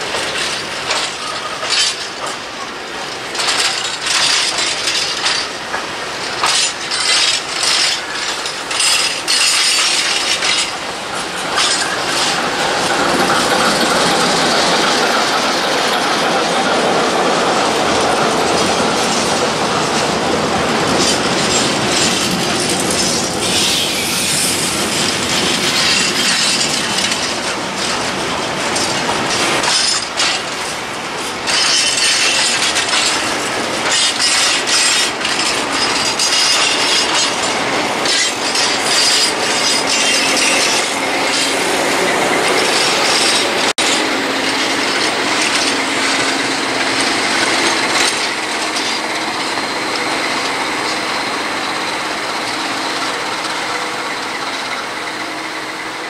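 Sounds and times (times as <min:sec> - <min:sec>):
train wheels clacking on rails: 0:00.0 - 0:56.0
high wheel squeal: 0:21.0 - 0:27.2, 0:31.5 - 0:56.0.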